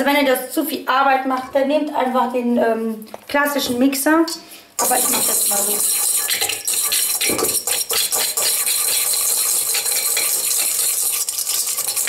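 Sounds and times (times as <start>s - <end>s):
whisk scraping metal bowl: 4.8s - 12.0s.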